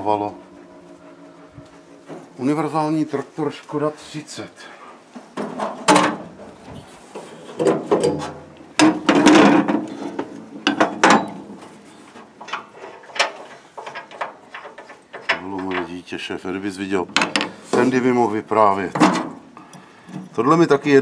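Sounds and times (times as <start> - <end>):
metal parts clanking and rattling: 7.2 - 18.0.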